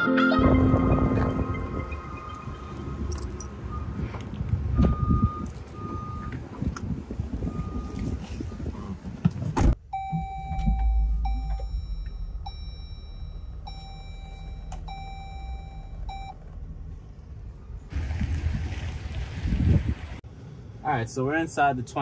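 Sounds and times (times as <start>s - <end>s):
car warning chime beeps: 0.5s - 4.0s, 4.8s - 6.4s, 9.8s - 16.4s
car door shutting: 9.2s - 16.6s
cabin hum: 9.6s - 17.9s.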